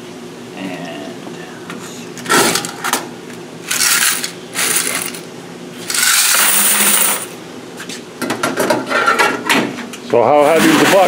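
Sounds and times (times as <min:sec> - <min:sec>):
coins pouring into plastic bucket: 0:03.7 - 0:05.2, 0:05.9 - 0:07.3
coins rattling in metal box: 0:03.7 - 0:05.2, 0:05.9 - 0:07.3.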